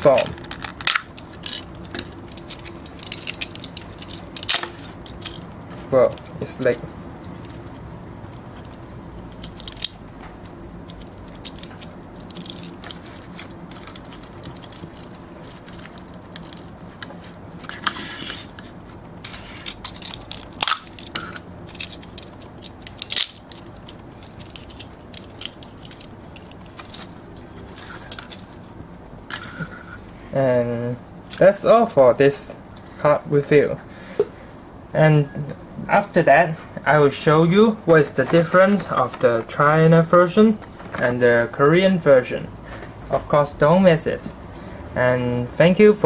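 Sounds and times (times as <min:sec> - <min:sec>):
plastic toy clicking and snapping: 0:19.8 - 0:27.0.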